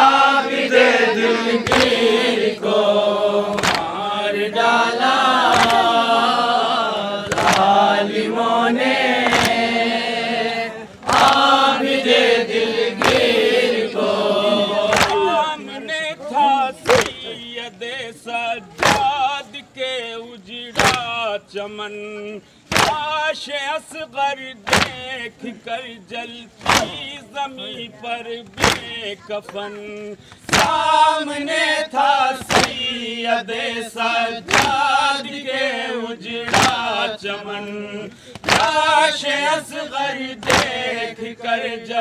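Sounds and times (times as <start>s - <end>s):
men chanting in chorus: 0.0s - 42.0s
chest-beating slaps: 1.6s - 2.1s, 3.5s - 4.0s, 5.4s - 6.0s, 7.2s - 7.8s, 9.1s - 9.8s, 12.9s - 13.6s, 14.9s - 15.3s, 16.8s - 17.3s, 18.8s - 19.2s, 20.8s - 21.2s, 22.7s - 23.1s, 24.7s - 25.0s, 26.6s - 27.1s, 28.4s - 29.6s, 30.3s - 31.0s, 32.4s - 32.9s, 34.4s - 34.9s, 36.4s - 36.9s, 38.3s - 38.8s, 40.4s - 40.9s.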